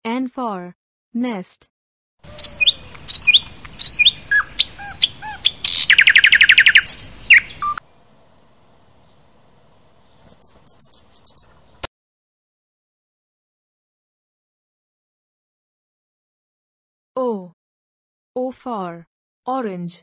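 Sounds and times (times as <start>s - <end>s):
small songbird chirping: 2.2s - 7.8s, 8.7s - 11.9s
fast rattling bird trill: 2.3s - 7.8s, 9.7s - 11.9s.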